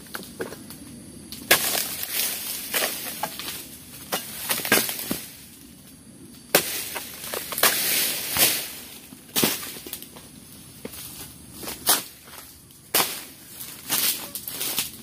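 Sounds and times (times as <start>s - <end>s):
sickle cracking through stalks: 1.3s - 5.4s, 6.4s - 10.1s, 12.9s - 15.0s
palm frond falling with rustle: 1.4s - 5.6s, 6.5s - 10.2s, 10.9s - 15.0s.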